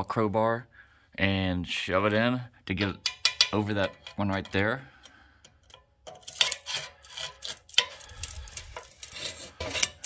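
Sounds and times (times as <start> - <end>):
pry bar scraping metal: 2.9 - 10.0.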